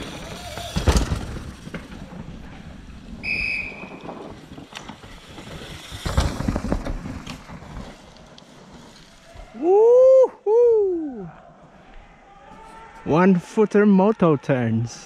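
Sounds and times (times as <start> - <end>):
bike tyres skidding in dirt: 0.0 - 10.0
bike clattering knocks: 0.5 - 2.1
whistle blast: 3.2 - 4.0.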